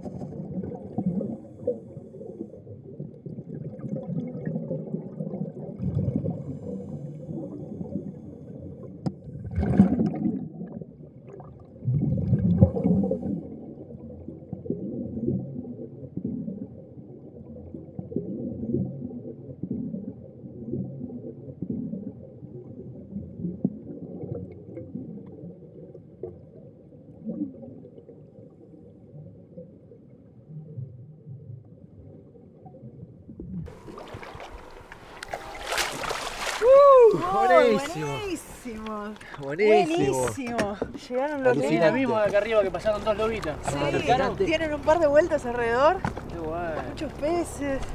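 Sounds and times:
underwater air bubbling: 0.0s - 47.9s
splashing: 33.6s - 47.9s.

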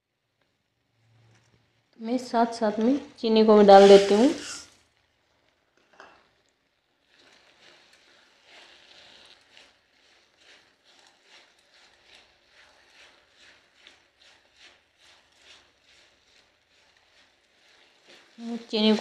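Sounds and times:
spatula scraping a steel pan: 3.4s - 4.6s, 7.1s - 19.0s.

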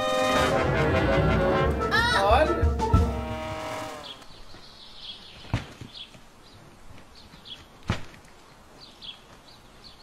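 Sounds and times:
small birds chirping: 3.9s - 10.0s.

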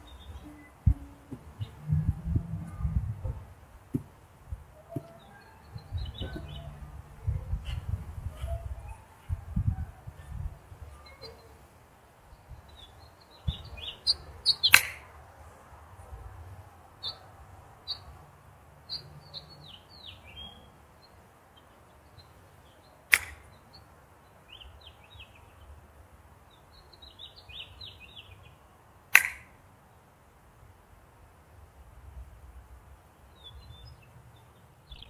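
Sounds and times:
small birds chirping: 0.0s - 2.1s, 4.7s - 15.2s, 17.0s - 29.6s, 33.0s - 35.0s
golf club striking ball: 14.6s - 15.0s, 23.1s - 23.4s, 29.2s - 29.5s.

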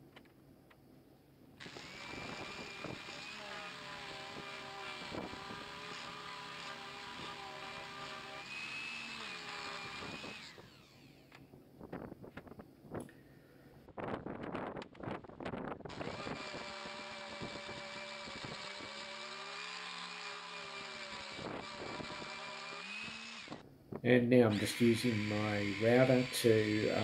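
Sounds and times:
orbital sander whining: 1.6s - 11.5s, 15.9s - 23.6s, 24.3s - 27.0s.

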